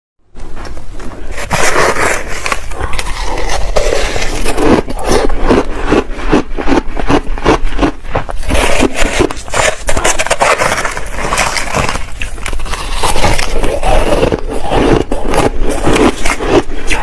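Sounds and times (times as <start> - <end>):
ice being chewed: 1.2 - 17.0
metal spoon scraping ice: 8.4 - 17.0.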